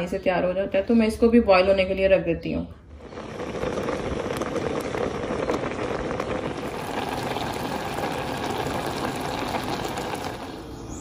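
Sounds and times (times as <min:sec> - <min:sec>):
water boiling and bubbling: 0:02.8 - 0:11.0.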